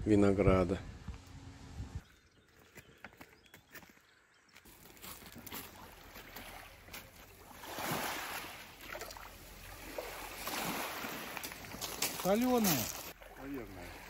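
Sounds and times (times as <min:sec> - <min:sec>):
small waves washing ashore: 0:05.6 - 0:14.0.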